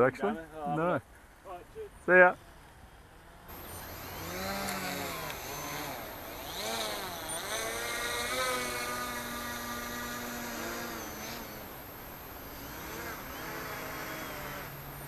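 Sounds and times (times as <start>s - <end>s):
electric motors whining: 3.5s - 15.0s.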